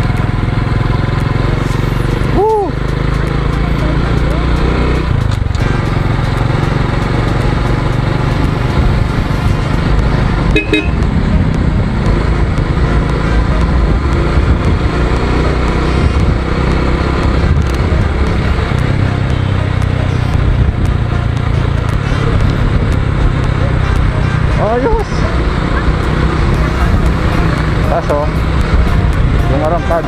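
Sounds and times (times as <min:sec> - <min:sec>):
motorcycle engine cruising: 0:00.0 - 0:30.0
road noise: 0:00.0 - 0:30.0
horn beep: 0:10.5 - 0:11.1.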